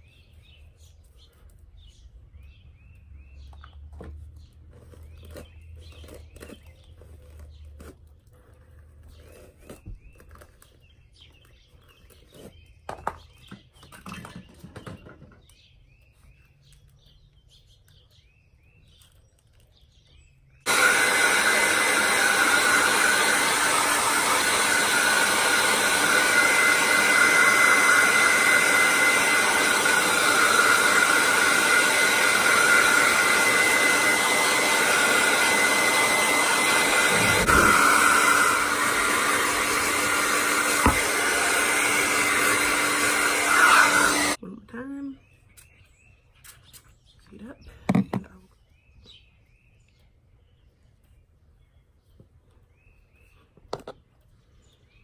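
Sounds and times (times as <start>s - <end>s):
hair dryer running: 20.7s - 44.4s.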